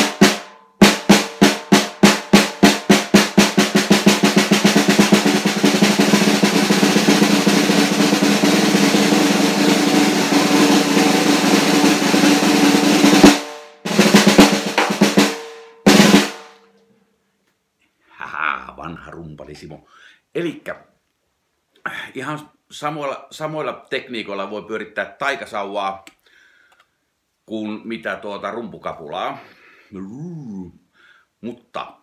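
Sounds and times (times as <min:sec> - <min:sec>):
snare drum roll: 0:00.0 - 0:16.6.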